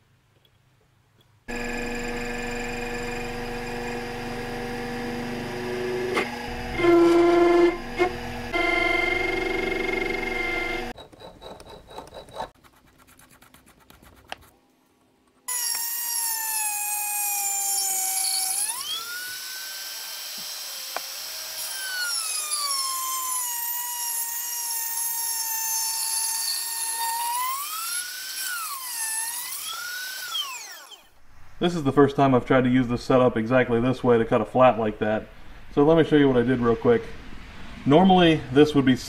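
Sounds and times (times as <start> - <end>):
lathe running: 1.5 - 10.9
rotary tool high whine: 1.5 - 11.0, 15.5 - 31.2.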